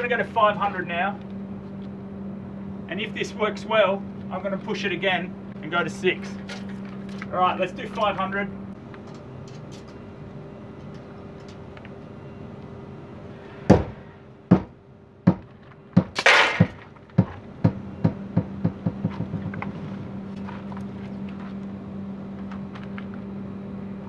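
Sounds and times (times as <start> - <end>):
steady low hum: 0.0 - 24.0
sledgehammer knocking on panel: 14.5 - 14.7, 15.3 - 19.6.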